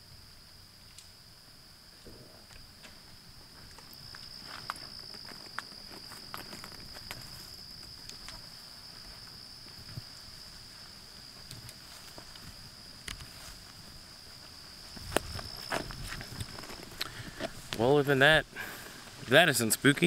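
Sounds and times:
high-pitched insect chorus: 0.0s - 20.0s
footsteps on leaf litter: 3.7s - 18.2s
twigs snapping: 15.0s - 17.8s.

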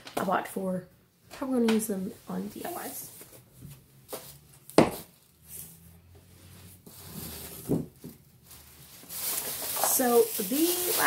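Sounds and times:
soft bumps and rustles: 1.7s - 10.5s.

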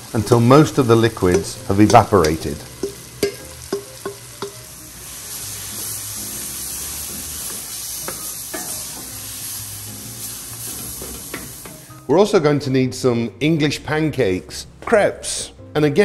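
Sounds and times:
mushrooms sizzling in a skillet: 0.0s - 12.1s
wooden spoon tapping and scraping: 1.2s - 4.6s.

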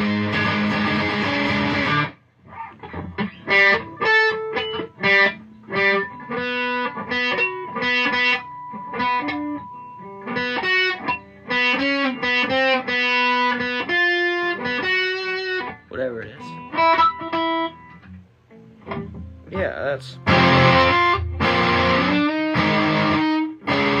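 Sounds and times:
distorted electric guitar chords: 0.0s - 24.0s
picked guitar single notes: 0.0s - 24.0s.

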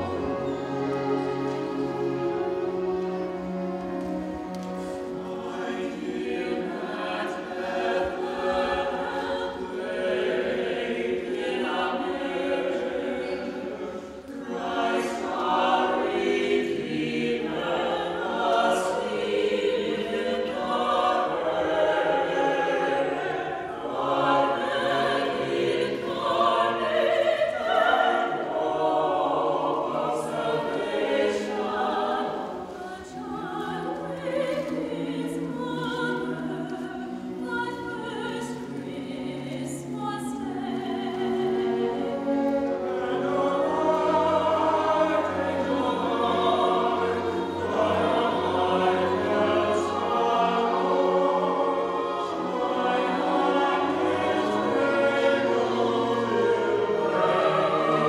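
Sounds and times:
choir singing: 0.0s - 58.0s
strings and woodwinds playing: 0.0s - 58.0s.

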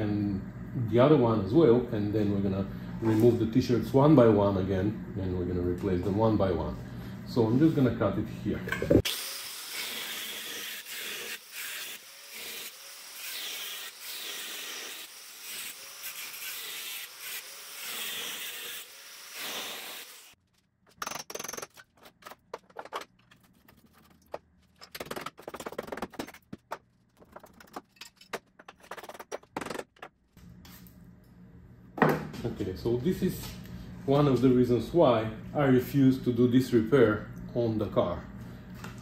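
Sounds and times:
angle grinder cutting steel: 9.0s - 20.4s.

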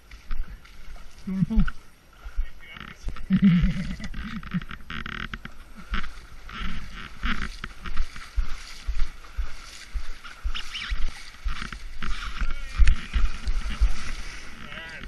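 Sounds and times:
kayak splashing in water: 5.4s - 15.0s.

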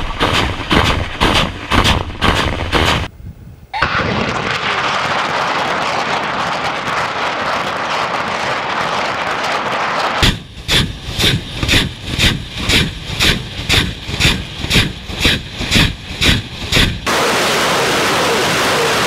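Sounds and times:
rocket launcher roar: 3.8s - 10.5s, 17.0s - 19.0s
rocket launch blasts: 3.8s - 11.0s, 17.0s - 19.0s.

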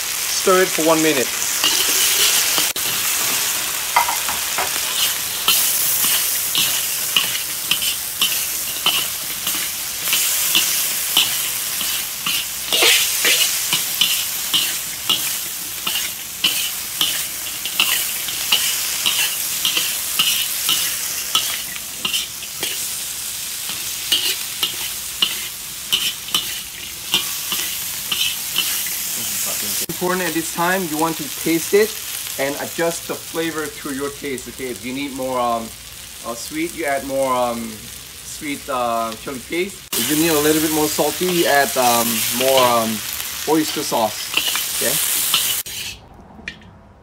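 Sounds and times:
oil sizzling in wok: 0.0s - 46.0s
metal spatula scraping wok: 1.4s - 29.0s, 39.9s - 46.6s.

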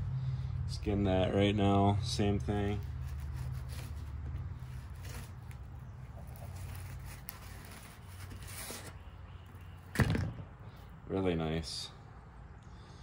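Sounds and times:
knife scraping on cardboard: 2.8s - 9.0s.

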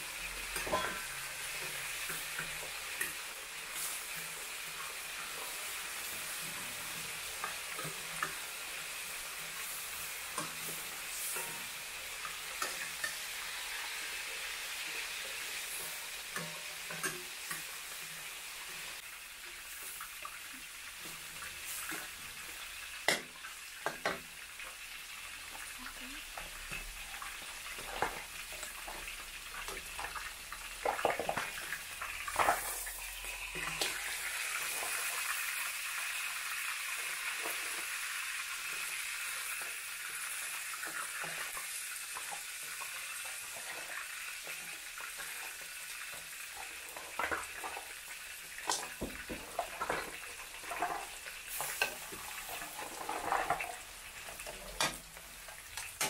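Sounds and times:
paste sizzling in a wok: 0.0s - 56.0s
metal ladle scraping a pan: 0.5s - 2.6s.

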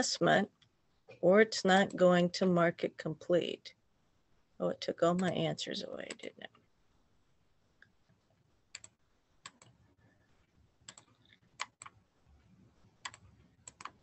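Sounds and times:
computer mouse clicking: 8.7s - 9.8s, 10.8s - 12.0s, 13.0s - 14.0s.

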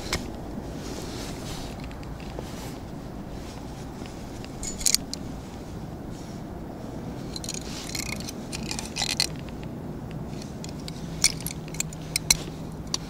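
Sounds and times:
low background hum: 0.0s - 13.0s
fishing reel clicking and rattling: 7.4s - 9.6s, 10.4s - 13.0s.

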